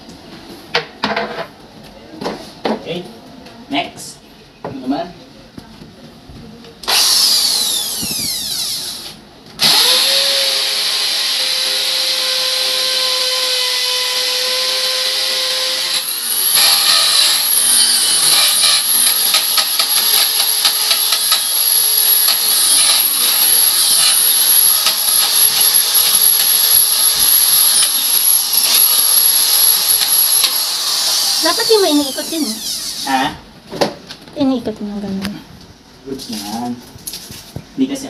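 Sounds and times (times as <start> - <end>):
electric drill boring into wall: 6.8 - 33.2.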